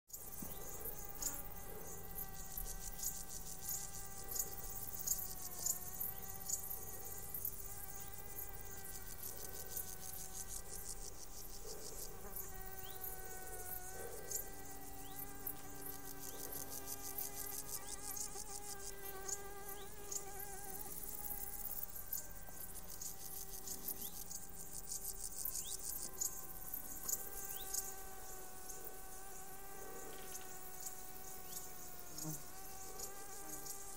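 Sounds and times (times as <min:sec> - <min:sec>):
flies and bees buzzing: 0:00.1 - 0:33.9
meadow insects chirring: 0:00.1 - 0:33.9.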